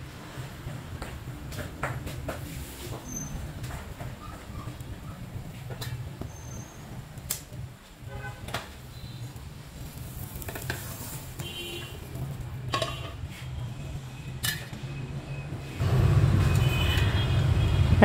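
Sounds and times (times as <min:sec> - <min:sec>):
frying pan and metal tray clinking: 0:12.7 - 0:13.2.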